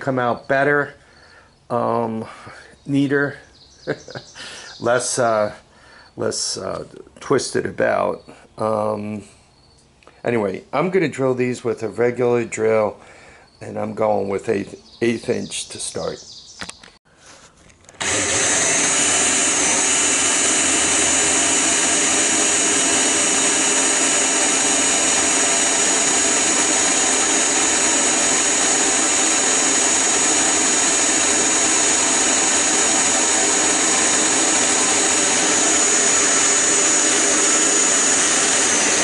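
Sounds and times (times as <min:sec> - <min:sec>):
electric drill boring metal: 0:17.9 - 0:39.0.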